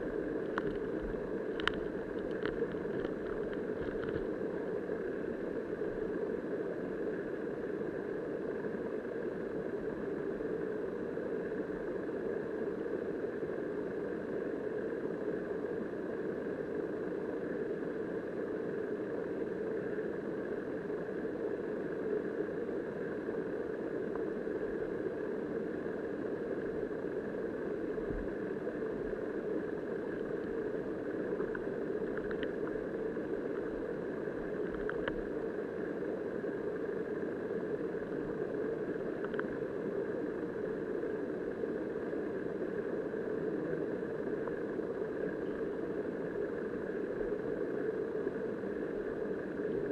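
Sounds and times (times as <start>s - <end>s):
muffled underwater river current: 0.0s - 49.9s
faint clicks: 0.4s - 4.3s, 31.4s - 32.8s, 34.6s - 35.2s, 39.2s - 39.5s.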